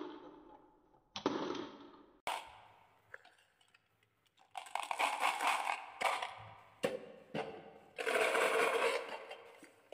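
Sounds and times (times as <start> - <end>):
marbles clattering in plastic pot: 8.0 - 9.5.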